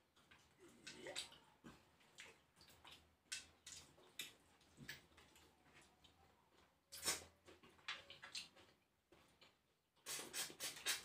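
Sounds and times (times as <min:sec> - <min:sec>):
wet mouth slurps and smacks: 0:06.9 - 0:07.3, 0:10.0 - 0:11.0.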